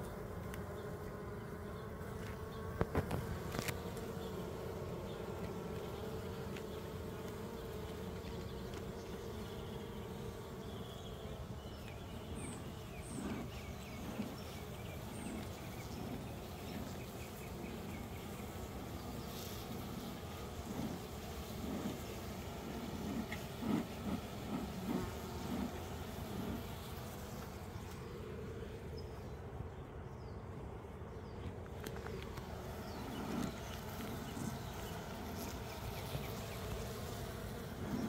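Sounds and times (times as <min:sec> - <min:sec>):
bees buzzing: 0:00.0 - 0:30.0, 0:30.8 - 0:38.0
bee smoker bellows puffs: 0:02.3 - 0:09.1, 0:12.3 - 0:28.0, 0:31.8 - 0:38.0.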